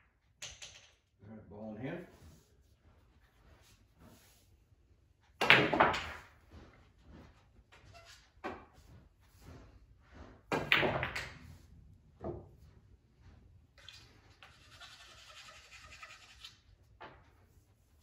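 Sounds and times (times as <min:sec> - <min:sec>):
pool balls clacking: 0:05.3 - 0:06.5, 0:10.4 - 0:12.6.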